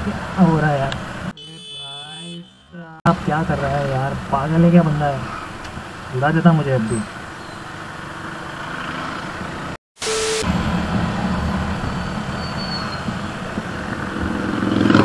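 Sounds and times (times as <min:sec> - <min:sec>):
road and wind noise: 0:00.0 - 0:15.0
motorcycle engine running: 0:13.1 - 0:15.0.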